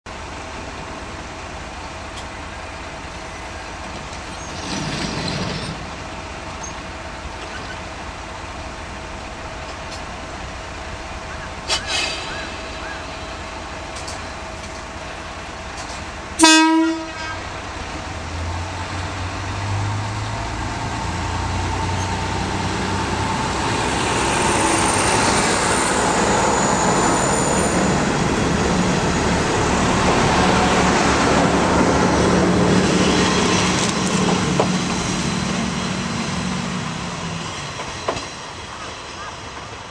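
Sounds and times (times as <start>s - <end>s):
diesel railcar passing: 0.1s - 39.9s
train horn blast: 16.4s - 17.6s.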